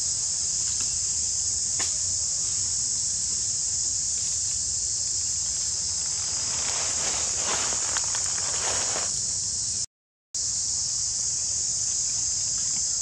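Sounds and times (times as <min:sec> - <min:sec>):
insects chirring: 0:00.0 - 0:13.0
rustling: 0:04.1 - 0:09.2.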